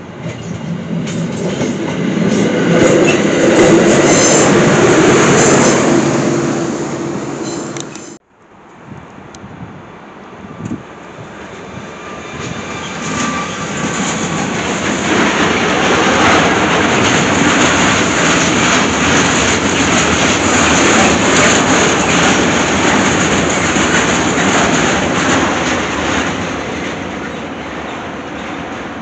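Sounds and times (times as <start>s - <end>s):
freight train rolling rumble: 0.0s - 8.2s, 8.9s - 29.0s
wheels clattering over rail joints: 12.4s - 28.9s.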